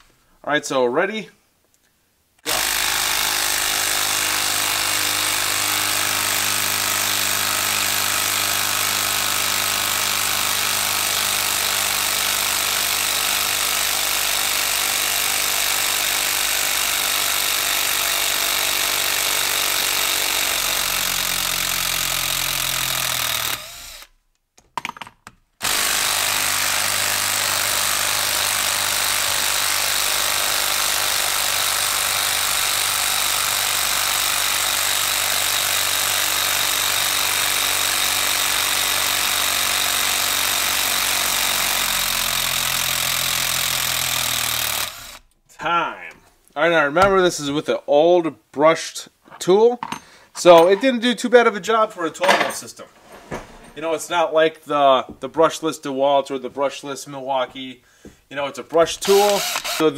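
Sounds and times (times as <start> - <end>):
impact driver hammering screw: 2.4 - 25.0, 25.6 - 45.4, 58.8 - 59.9.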